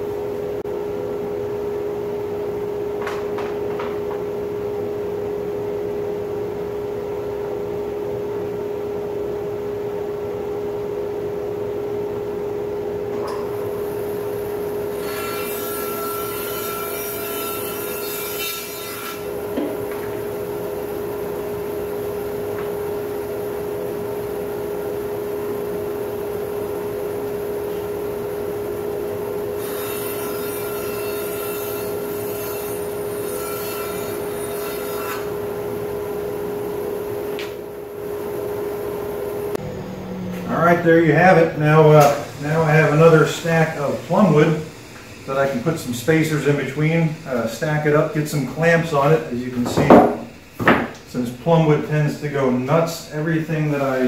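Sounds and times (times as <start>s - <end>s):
bandsaw humming: 13.6s - 22.3s, 29.5s - 35.8s, 39.4s - 51.6s.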